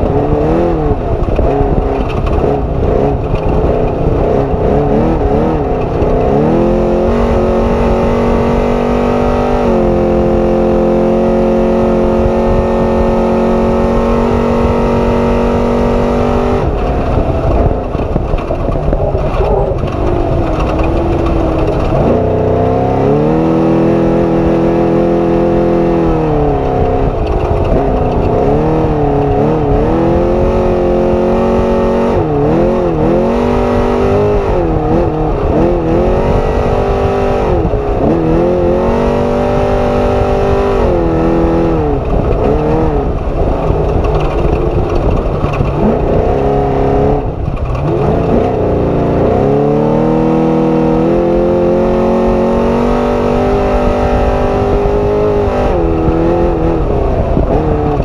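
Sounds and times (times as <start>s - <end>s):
constant ride rumble: 0.0s - 58.0s
truck engine revving: 0.0s - 58.0s.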